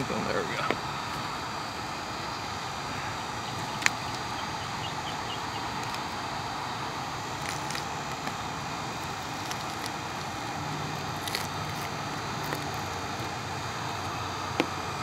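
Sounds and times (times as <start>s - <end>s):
heat gun blowing hiss: 0.0s - 15.0s.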